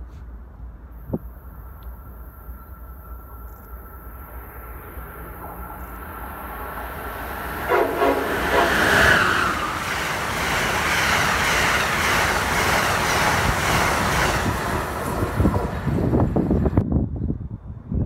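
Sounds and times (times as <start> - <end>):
train wheels rushing on rails: 2.0 - 17.1
train horn: 7.6 - 9.7.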